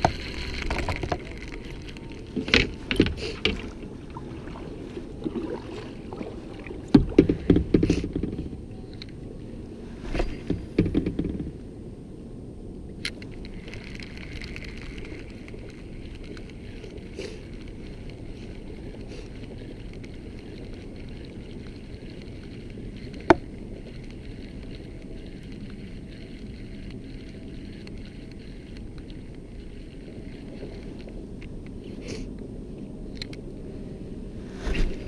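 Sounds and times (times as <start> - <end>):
fishing gear knocking on kayak: 6.9 - 8.3.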